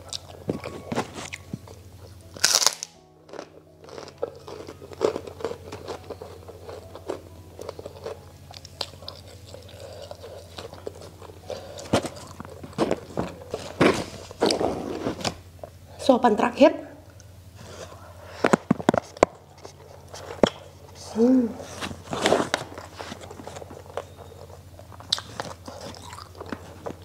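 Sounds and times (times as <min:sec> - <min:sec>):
chewing crispy fried food: 0:00.0 - 0:14.6, 0:21.9 - 0:27.0
background music: 0:00.0 - 0:27.0.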